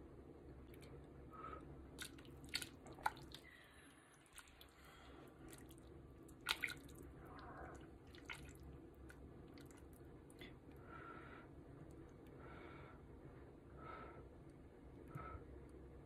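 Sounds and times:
low steady hum: 0.0s - 16.0s
liquid dripping: 2.0s - 10.6s.

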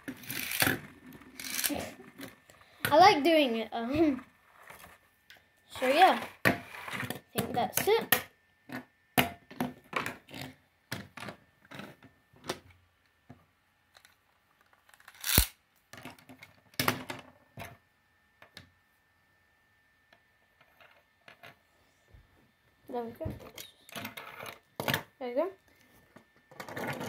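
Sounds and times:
spinning tops clacking on wood: 0.1s - 0.8s, 1.4s - 1.7s.

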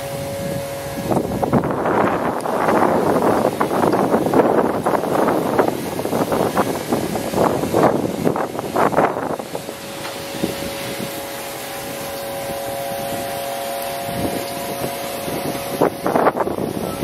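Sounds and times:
machine hum with held tones: 0.0s - 7.5s, 9.2s - 17.0s
wind rushing on microphone: 0.0s - 17.0s.

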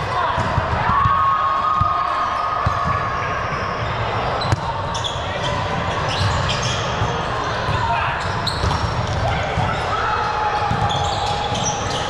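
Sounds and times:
shoe squeaks: 3.8s - 9.1s, 10.8s - 12.0s
ball bouncing on gym floor: 4.5s - 4.7s, 8.5s - 9.7s.

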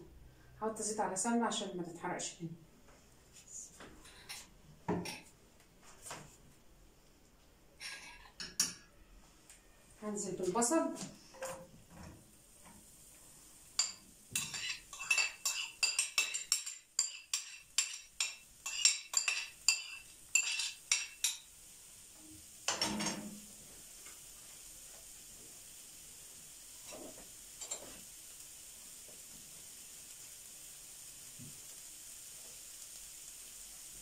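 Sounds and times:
onion sizzling in hot oil: 10.4s - 34.0s.

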